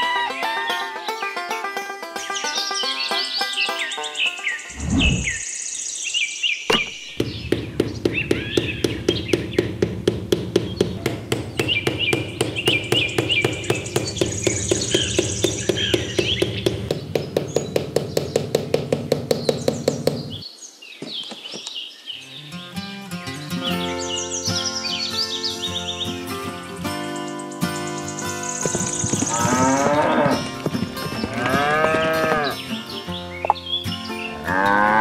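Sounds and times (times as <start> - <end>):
birds chirping: 0.0 - 35.0
low rumble: 4.8 - 5.4
fast even tapping: 6.7 - 20.4, 28.2 - 32.7.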